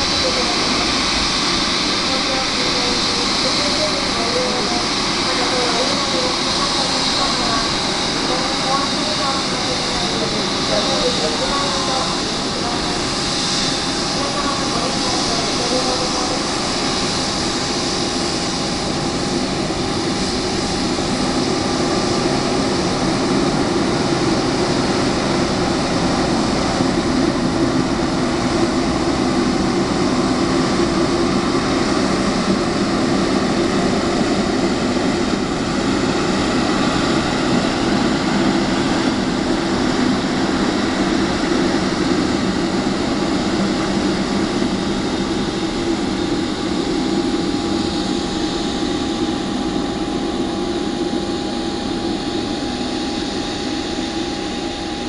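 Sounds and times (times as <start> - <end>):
jet engines rumbling and whining: 0.0 - 55.0.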